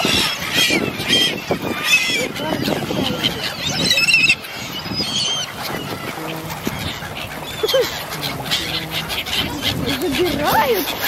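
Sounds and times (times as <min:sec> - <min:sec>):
duck-like quacking and honking: 0:00.0 - 0:11.0.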